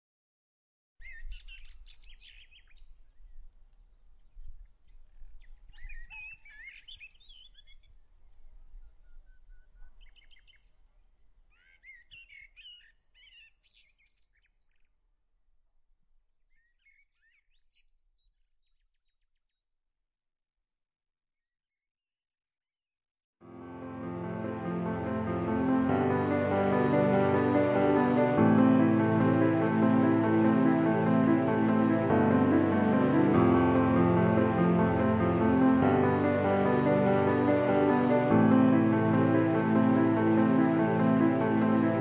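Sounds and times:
small birds chirping: 0:01.0 - 0:10.8, 0:11.5 - 0:15.0.

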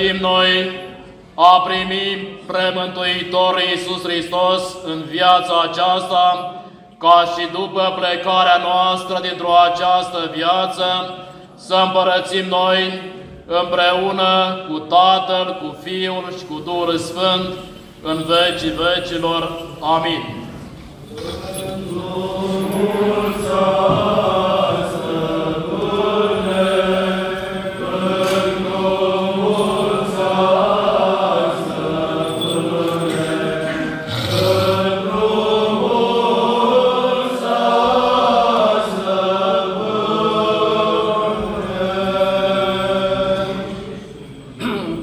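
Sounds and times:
cantors chanting: 0:00.0 - 0:45.0.

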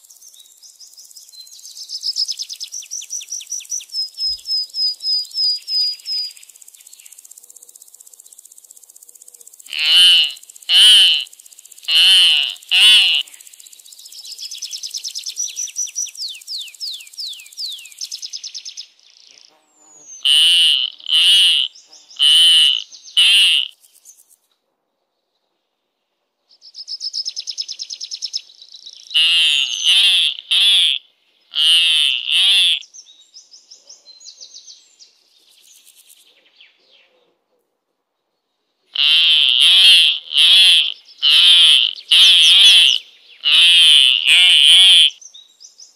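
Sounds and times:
eagle shrill calls: 0:09.7 - 0:11.3, 0:11.9 - 0:13.2, 0:20.2 - 0:23.7, 0:29.2 - 0:31.0, 0:31.6 - 0:32.8, 0:39.0 - 0:45.2
eagle chattering: 0:09.7 - 0:13.3, 0:20.3 - 0:23.7, 0:29.2 - 0:31.0, 0:31.6 - 0:32.8, 0:39.0 - 0:45.2.

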